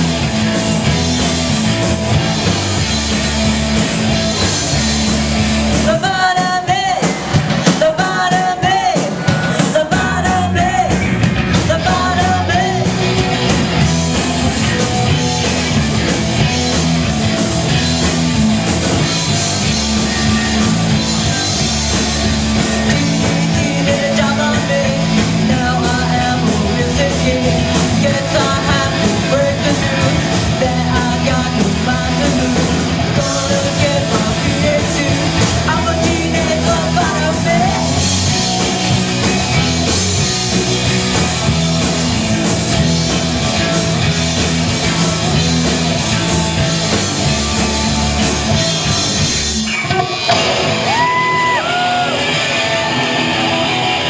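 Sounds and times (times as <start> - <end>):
live rock band playing: 0.0 - 54.0
person singing: 5.7 - 13.2, 22.5 - 38.8.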